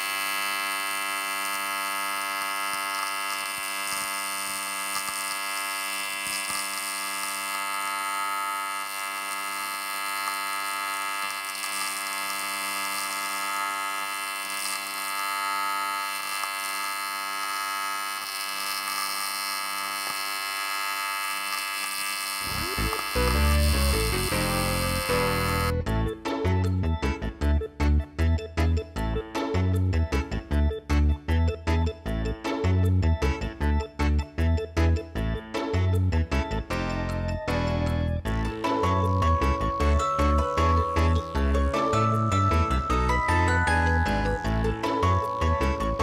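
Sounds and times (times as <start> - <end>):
welding arc buzzing: 0.0 - 25.8, 38.0 - 46.0.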